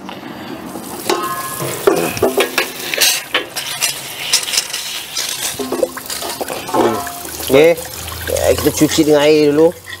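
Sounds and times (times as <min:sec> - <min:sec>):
metal part clinking against pot: 0:01.1 - 0:07.3, 0:08.6 - 0:10.0.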